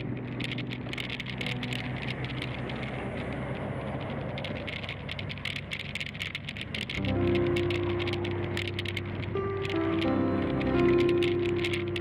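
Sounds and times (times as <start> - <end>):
bicycle tyres hissing: 0.0 - 7.0
wind: 0.0 - 10.0
camera rattling on bike: 0.0 - 12.0.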